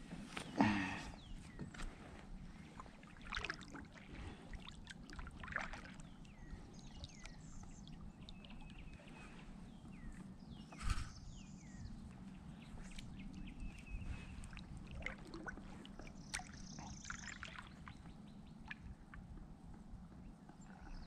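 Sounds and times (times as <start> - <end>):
water sloshing against boat hull: 1.4 - 10.3, 12.2 - 19.4.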